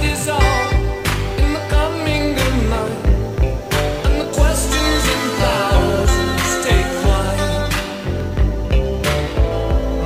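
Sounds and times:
pop song with singing: 0.0 - 10.0.

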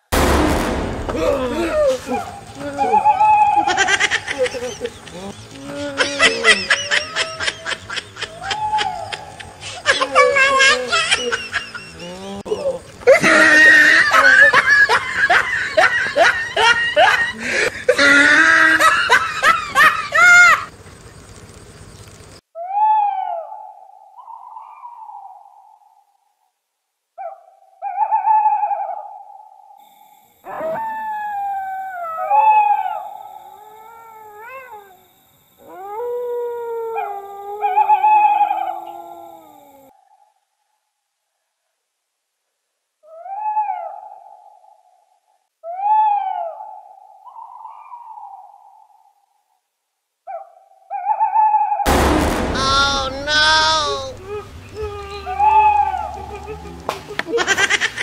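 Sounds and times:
shrill cries: 1.0 - 20.7, 30.4 - 39.9, 51.9 - 56.8
loud human laughter: 1.2 - 20.7, 52.6 - 58.0
dogs howling: 1.4 - 20.7, 30.5 - 39.9, 52.6 - 57.2.

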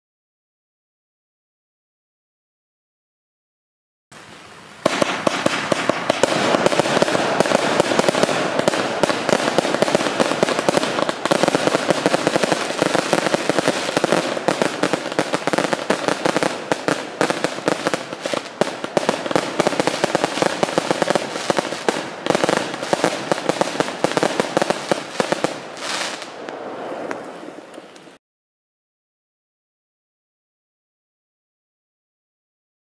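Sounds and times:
fireworks barrage: 4.8 - 28.2.

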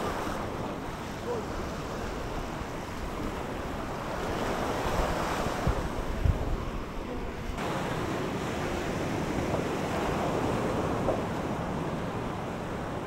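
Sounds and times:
waves washing on shore: 0.0 - 13.0
wind buffeting microphone: 0.0 - 13.0.

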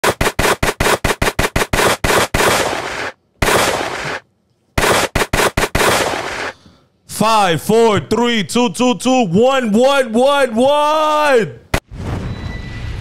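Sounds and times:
machine-gun fire: 0.0 - 4.2, 4.8 - 6.6.

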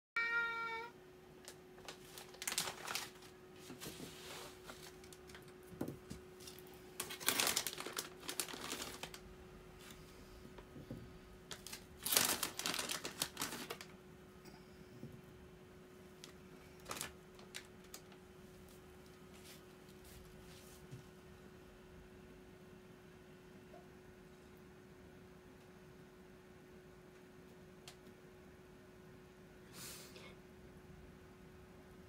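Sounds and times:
faint steady hum: 0.2 - 32.0
plastic bag crinkling: 1.8 - 3.4, 4.6 - 5.7, 6.4 - 10.0, 11.5 - 14.0, 16.2 - 18.2.

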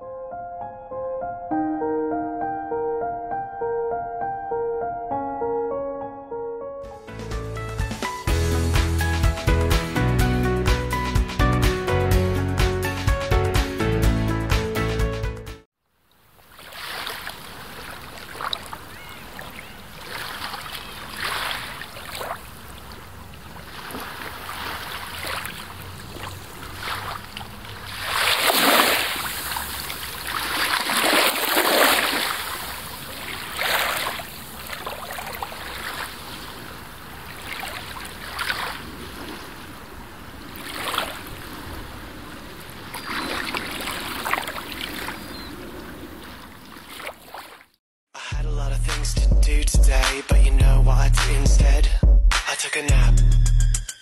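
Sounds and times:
wind: 15.7 - 47.8
small waves rushing: 16.2 - 47.8.

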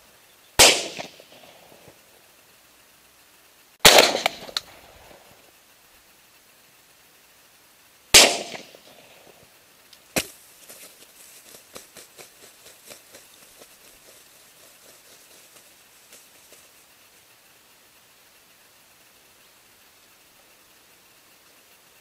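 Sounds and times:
faint ticks and rustles: 0.0 - 22.0
shotgun shots with echo: 0.6 - 1.8, 3.8 - 4.8, 8.1 - 9.2.

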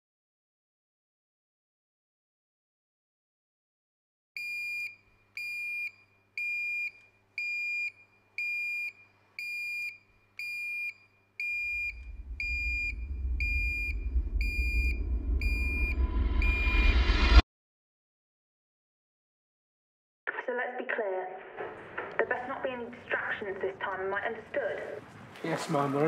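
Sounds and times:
electronic alarm beeping: 4.4 - 17.2
low rumbling drone: 11.6 - 17.4.

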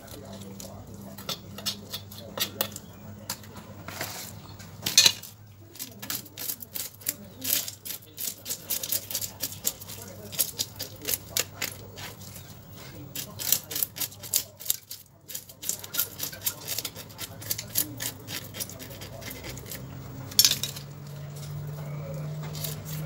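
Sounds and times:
knife scraping fish scales: 5.7 - 23.0.

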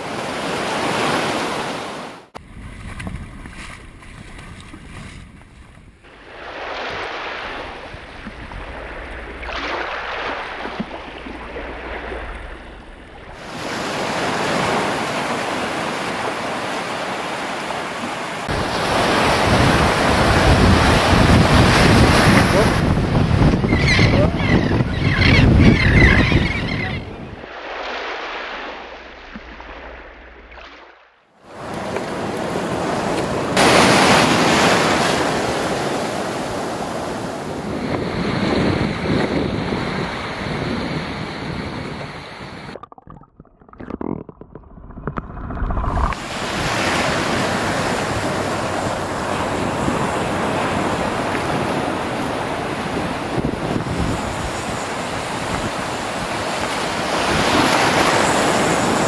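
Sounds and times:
ocean surf washing ashore: 0.0 - 5.0, 6.0 - 30.5, 31.4 - 42.8, 45.7 - 59.0
wind buffeting microphone: 18.6 - 27.4, 35.9 - 42.8, 45.0 - 59.0.

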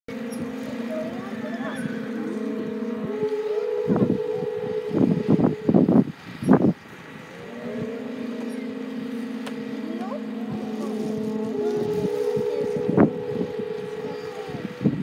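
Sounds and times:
conch shell trumpets blowing: 0.1 - 15.0
wind buffeting microphone: 0.1 - 15.0.

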